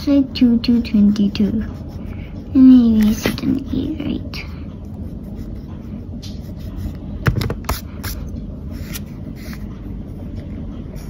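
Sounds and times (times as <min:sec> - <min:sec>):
pencil scratching on paper: 0:00.0 - 0:07.1, 0:07.7 - 0:11.0.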